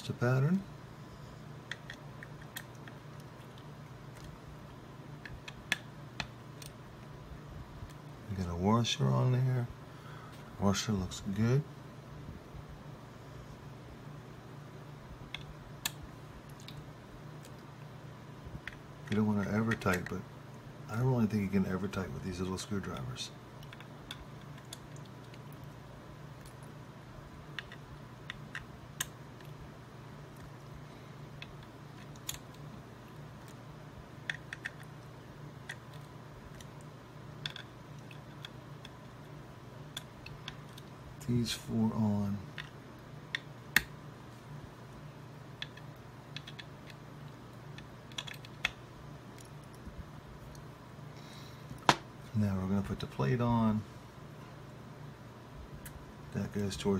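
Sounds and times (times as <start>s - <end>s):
low steady hum: 0.0s - 56.9s.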